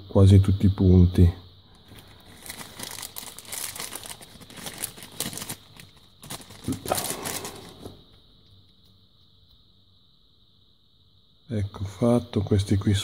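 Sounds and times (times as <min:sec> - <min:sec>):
plastic bag crinkling: 0:01.7 - 0:08.0.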